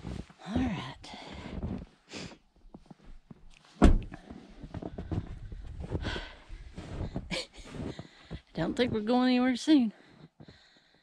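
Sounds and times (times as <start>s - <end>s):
footsteps through snow: 0.0s - 3.0s, 4.3s - 10.3s
sharp loud thump: 3.8s - 4.1s.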